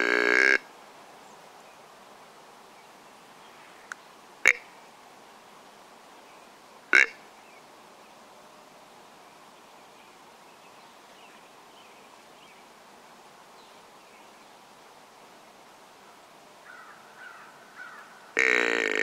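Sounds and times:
steady low hiss: 0.0 - 19.0
distant bird calls: 16.0 - 19.0.

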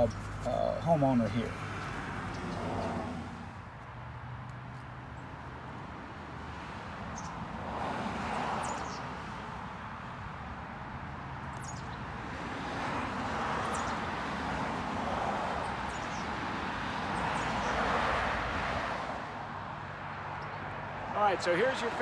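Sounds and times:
cars passing: 0.0 - 22.0.

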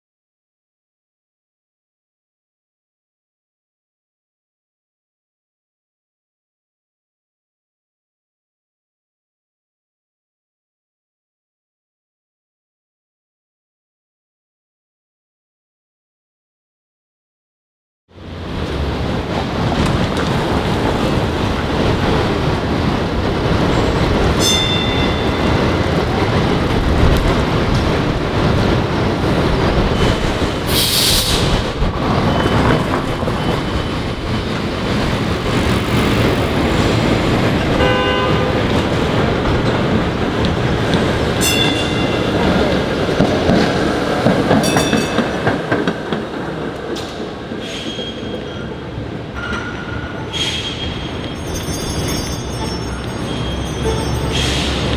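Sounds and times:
city traffic: 18.1 - 54.9
streetcar rumbling on rails: 18.1 - 54.9
high-pitched ringing tones: 50.9 - 54.8.

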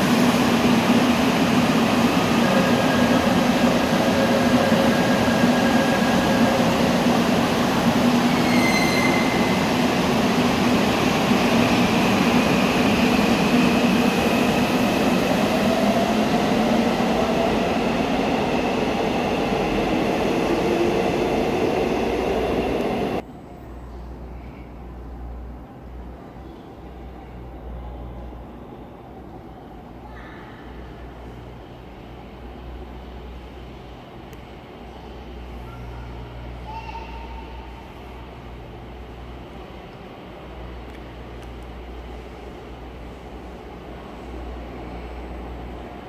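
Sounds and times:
electric train pulling away: 0.0 - 23.2.

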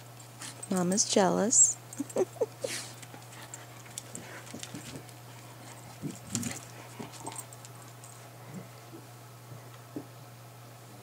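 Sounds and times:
soft puppy noises: 1.6 - 9.2.

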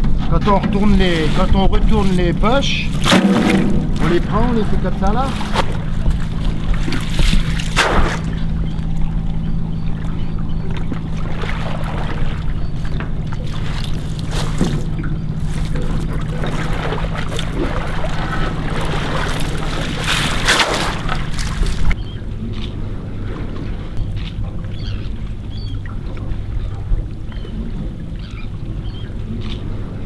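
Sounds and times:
boat engine idling: 0.0 - 30.0
water splashing and dripping: 0.5 - 22.0.

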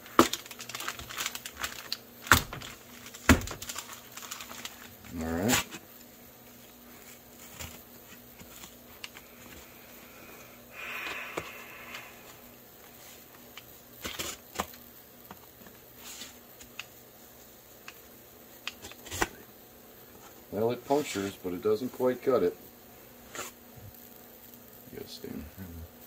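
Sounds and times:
cardboard rustling and tearing: 0.0 - 5.8, 6.9 - 9.1.

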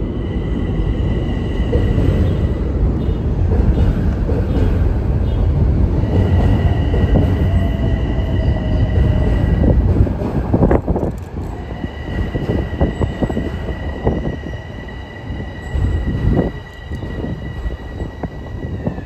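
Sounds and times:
electric train rumbling: 0.0 - 19.0
wind buffeting microphone: 0.0 - 19.0.

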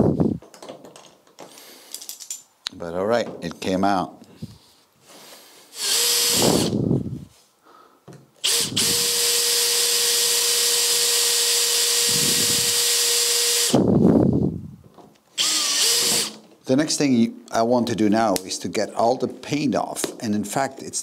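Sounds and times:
power drill drilling: 5.8 - 6.8, 8.4 - 13.8, 15.4 - 16.4.

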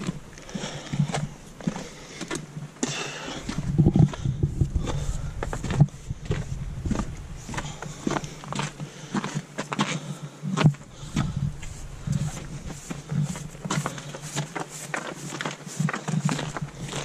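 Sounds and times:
footsteps on dirt trail: 0.0 - 17.0
low rumble: 3.4 - 8.8.

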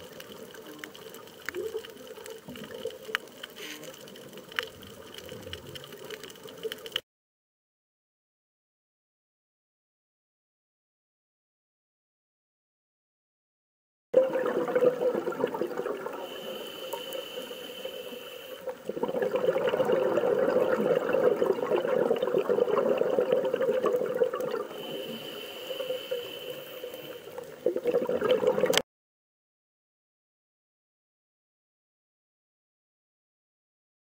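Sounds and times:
underwater bubbling and crackling: 0.0 - 7.0, 14.2 - 28.8
thin high hiss: 16.2 - 18.7, 24.8 - 27.5.

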